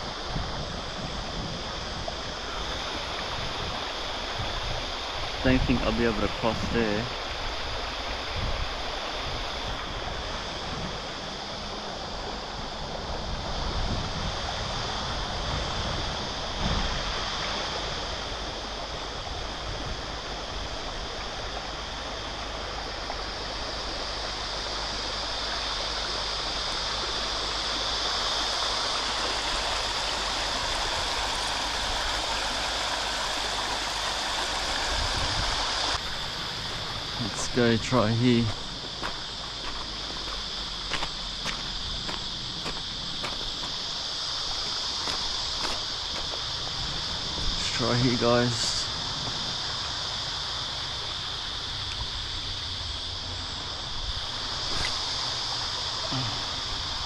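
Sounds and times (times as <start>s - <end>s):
river water rushing over rocks: 16.1s - 57.0s.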